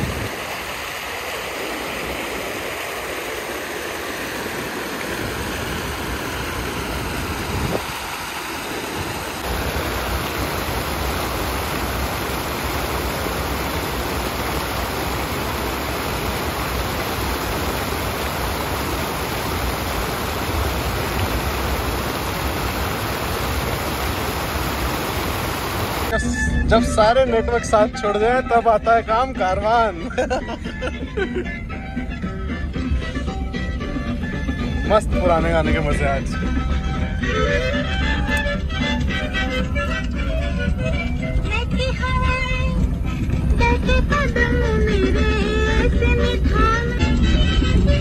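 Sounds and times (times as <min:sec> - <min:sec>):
stream and small waterfall rushing: 0:00.0 - 0:26.2.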